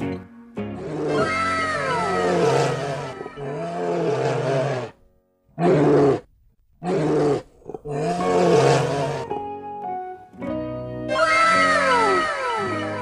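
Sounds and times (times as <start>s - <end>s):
bear low vocal calls: 0.8s - 5.0s, 5.6s - 9.5s, 11.1s - 13.0s.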